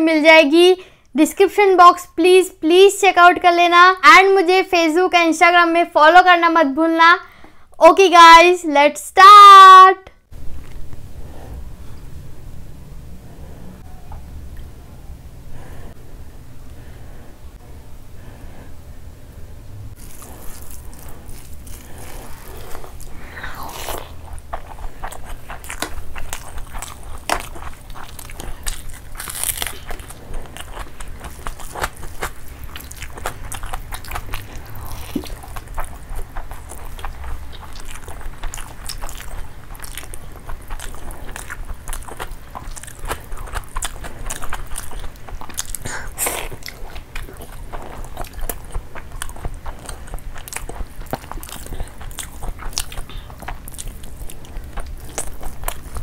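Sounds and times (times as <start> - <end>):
chewing and biting: 20.0 - 56.0.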